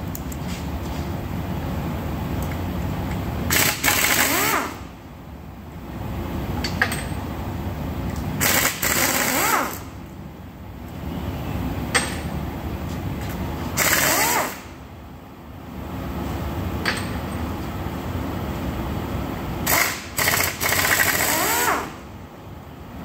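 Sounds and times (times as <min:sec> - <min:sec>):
air wrench whine: 0:03.5 - 0:04.9, 0:08.4 - 0:09.9, 0:13.7 - 0:14.8, 0:19.6 - 0:22.0.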